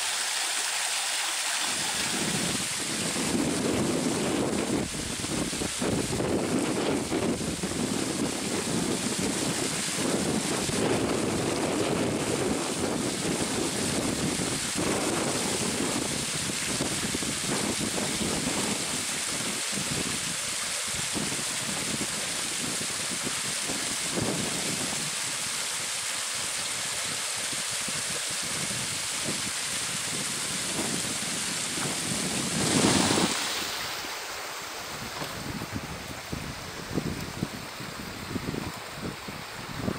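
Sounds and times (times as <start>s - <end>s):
wind buffeting microphone: 2.2s - 20.3s, 27.9s - 33.7s, 34.9s - 39.9s.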